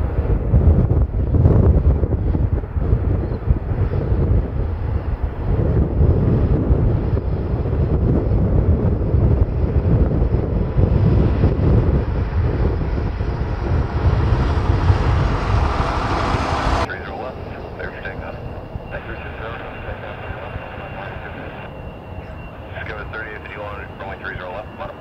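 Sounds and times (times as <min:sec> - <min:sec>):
wind buffeting microphone: 0:00.0 - 0:24.8
jet engines rumbling: 0:00.0 - 0:25.0
high-pitched engine noise: 0:10.9 - 0:25.0.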